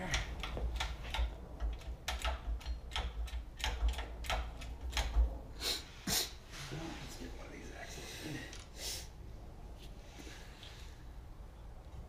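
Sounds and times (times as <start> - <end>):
metallic clicks and knocks of tools: 0.0 - 5.3.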